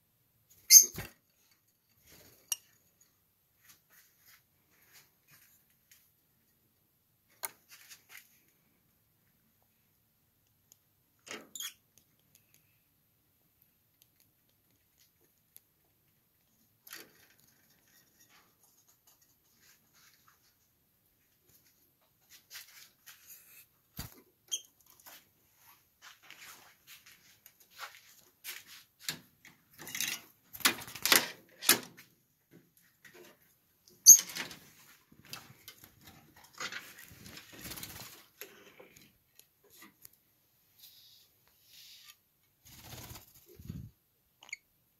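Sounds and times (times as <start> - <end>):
lovebirds chirping and squeaking: 0.6 - 1.0, 11.6 - 11.8.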